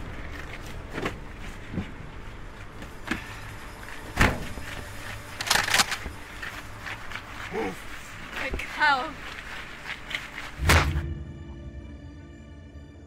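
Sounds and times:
gun clacking: 5.4 - 6.1
heavy thud: 10.6 - 11.8.

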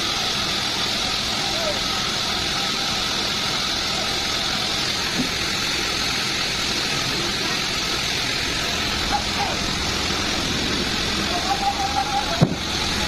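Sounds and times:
band sawmill running with hiss: 0.0 - 13.0.

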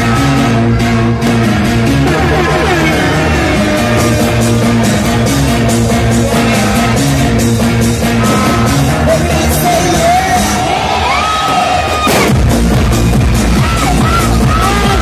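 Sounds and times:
loud dance music: 0.0 - 15.0.

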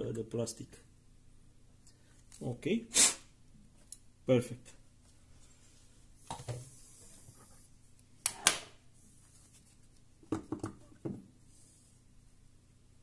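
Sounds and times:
objects knocking on wooden desk: 10.2 - 11.3.

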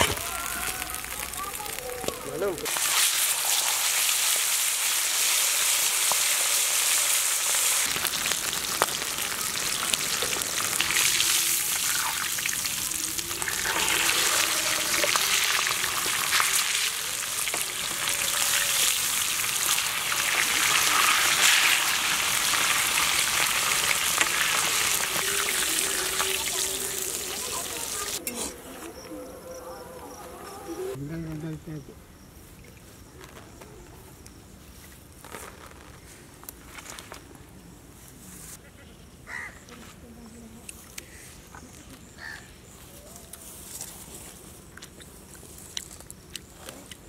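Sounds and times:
fish sizzling in oil: 0.0 - 28.2.

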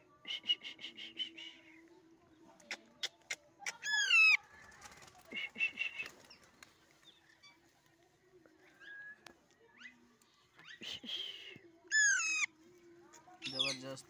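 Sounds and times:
parakeet squawking: 11.9 - 12.5.

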